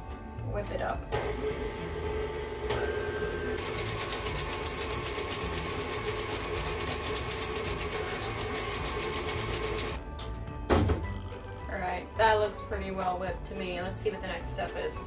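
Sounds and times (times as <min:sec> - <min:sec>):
stand mixer running: 0:01.2 - 0:10.0.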